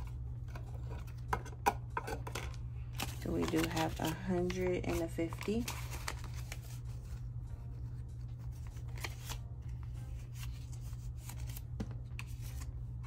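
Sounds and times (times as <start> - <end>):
steady low hum: 0.0 - 13.0
banknotes rustling: 2.8 - 13.0.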